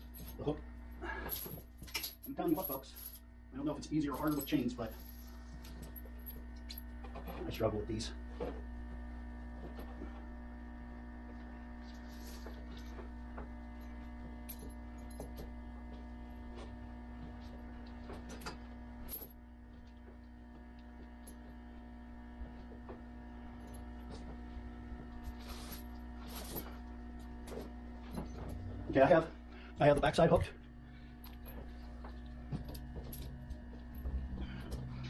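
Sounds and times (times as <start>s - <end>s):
low electrical hum: 0.0s - 35.0s.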